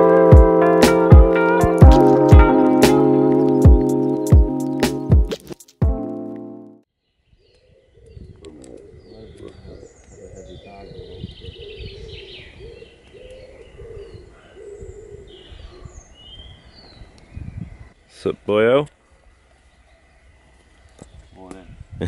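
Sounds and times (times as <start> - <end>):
small birds chirping: 7.0 - 22.0
pigeon cooing: 8.0 - 16.0.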